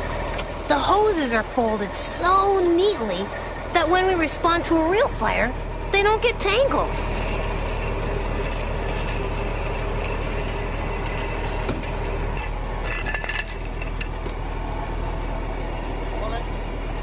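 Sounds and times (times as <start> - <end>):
low steady hum: 0.0 - 17.0
metal hose couplings clinking: 6.9 - 14.3.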